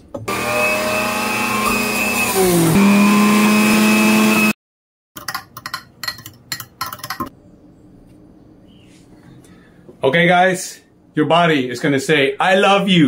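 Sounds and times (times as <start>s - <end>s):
electric juicer motor running: 0.2s - 4.6s
spoon clinking in a glass: 5.2s - 7.3s.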